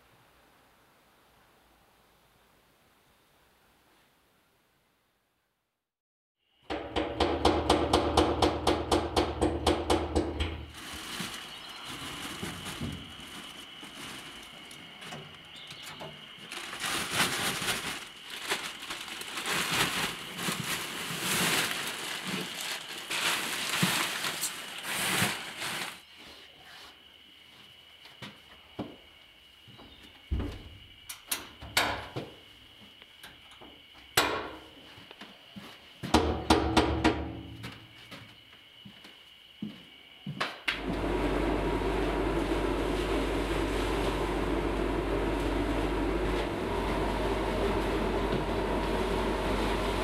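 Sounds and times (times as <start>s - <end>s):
plastic bag rustling: 10.6s - 26.1s
loud pulsing hum: 40.9s - 50.0s.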